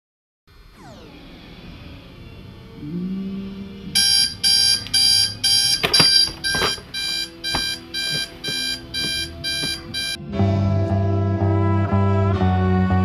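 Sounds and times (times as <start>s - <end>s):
alarm clock beeping: 4.0s - 10.2s
knocks: 5.6s - 10.2s.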